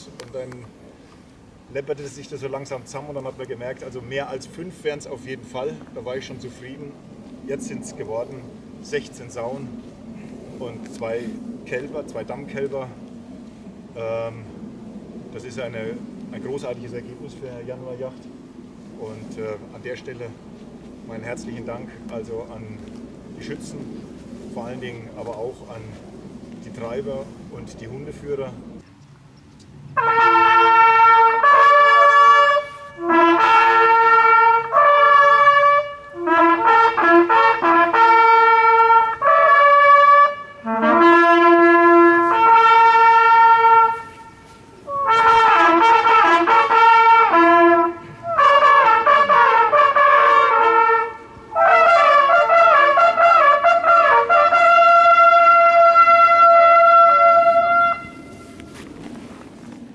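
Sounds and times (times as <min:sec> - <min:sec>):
hunting horns playing fanfares: 0:30.0 - 0:59.0.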